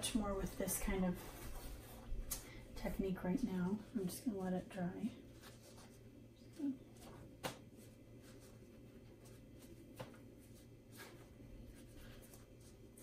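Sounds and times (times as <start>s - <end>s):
paper rustling: 6.9s - 13.0s.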